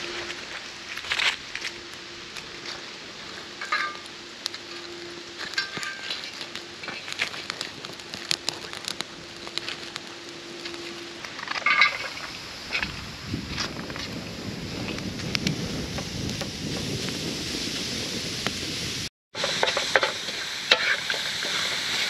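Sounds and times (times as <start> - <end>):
steady cooking hiss: 0.0 - 22.0
sharp pops of fire: 5.4 - 11.6.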